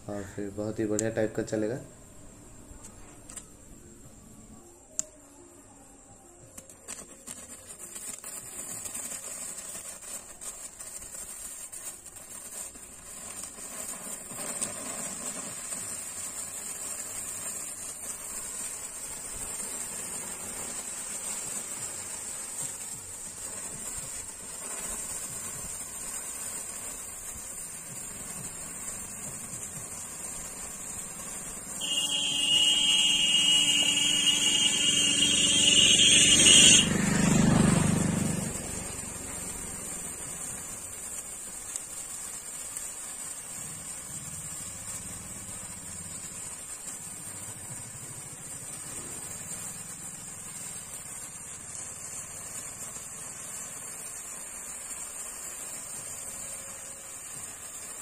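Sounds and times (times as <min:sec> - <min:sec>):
sparklers fizzing and crackling: 0:00.0 - 0:58.0
loud steady high tone: 0:31.8 - 0:36.9.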